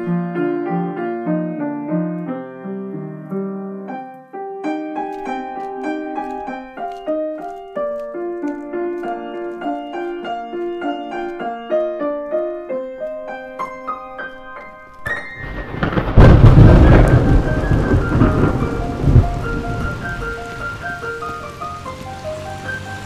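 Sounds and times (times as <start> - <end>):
solo piano melody: 0.0 - 23.0
heavy rain: 15.0 - 23.0
loud thunder rumble: 15.4 - 21.8.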